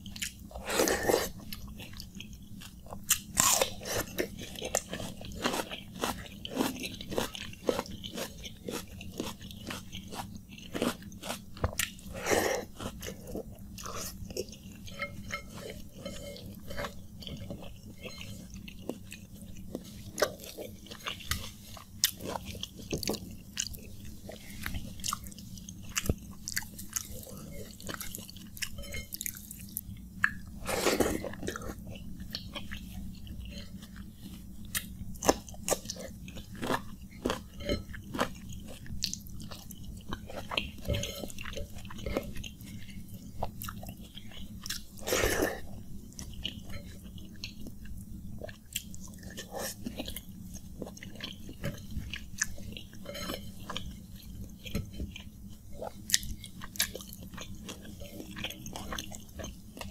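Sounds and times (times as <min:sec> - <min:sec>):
chewing with wet mouth clicks: 0:00.0 - 0:00.6, 0:12.7 - 0:59.9.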